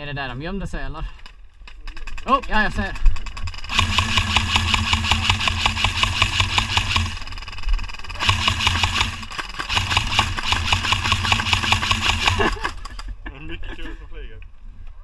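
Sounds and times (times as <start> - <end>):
airsoft gun firing bursts: 1.8 - 13.0
gearbox motor whine: 3.6 - 12.5.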